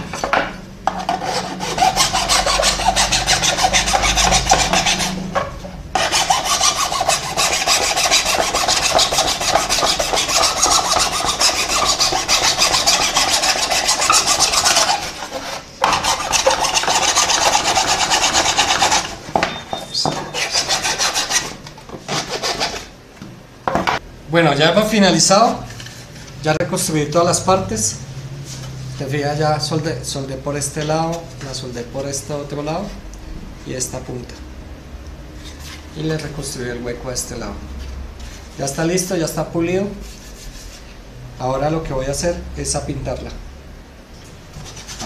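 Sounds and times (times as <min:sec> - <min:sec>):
hand file rasping on plastic: 0:00.9 - 0:05.3, 0:06.0 - 0:19.1, 0:20.1 - 0:22.9.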